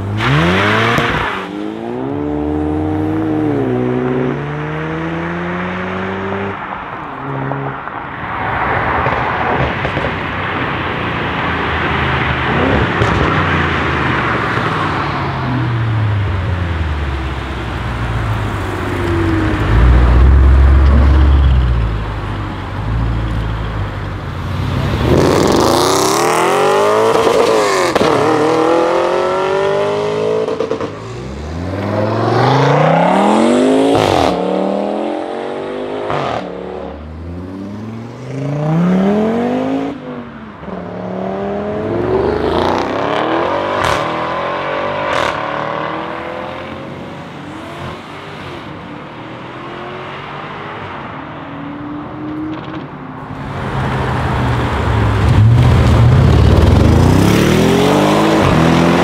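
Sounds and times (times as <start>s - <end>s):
car exhaust rumbling and revving: 15.4s - 35.0s, 52.1s - 59.0s.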